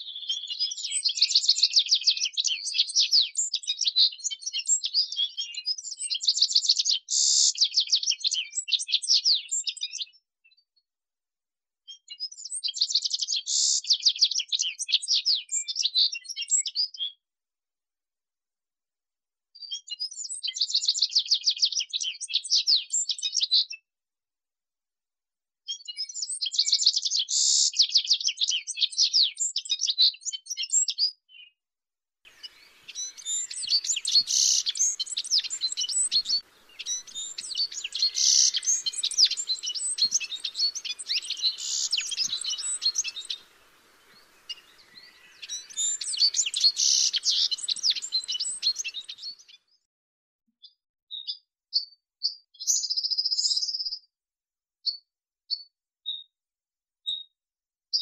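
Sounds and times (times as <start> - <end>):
finch singing high twittering song: 32.3 - 49.6.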